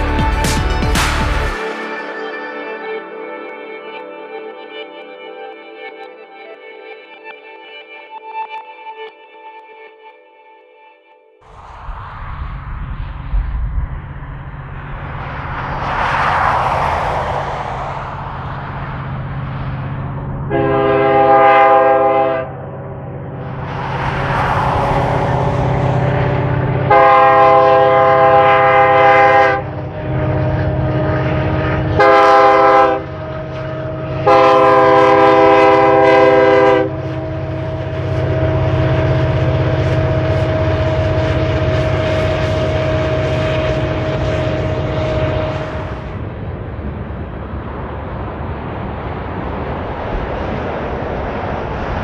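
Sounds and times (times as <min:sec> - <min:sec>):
locomotive air horn blasts: 0:20.5 - 0:22.6, 0:26.9 - 0:31.2, 0:31.9 - 0:33.2, 0:33.8 - 0:37.3, 0:41.4 - 0:46.0
locomotive engine rumble: 0:22.6 - 0:32.3.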